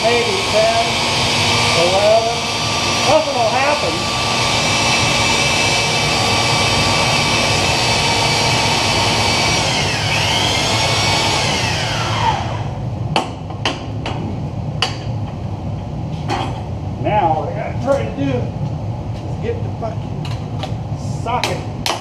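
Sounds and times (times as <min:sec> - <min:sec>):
electric motor running under load: 0:00.0 - 0:12.8.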